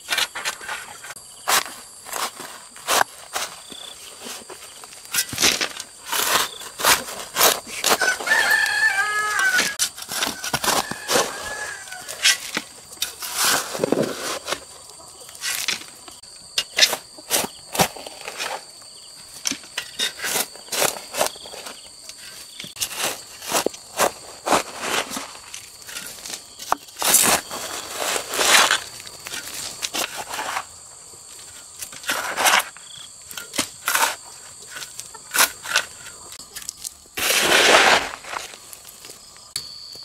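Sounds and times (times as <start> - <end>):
rooster crowing: 7.9 - 12.4.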